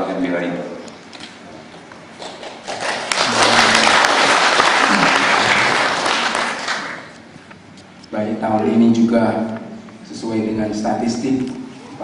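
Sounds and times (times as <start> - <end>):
audience applauding: 2.1 - 7.2.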